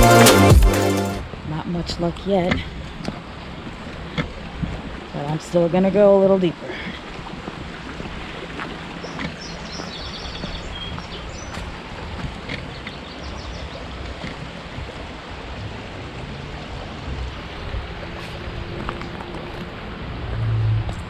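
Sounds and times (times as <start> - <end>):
creek water rushing: 0.0 - 21.0
wind rumble on microphone: 7.1 - 21.0.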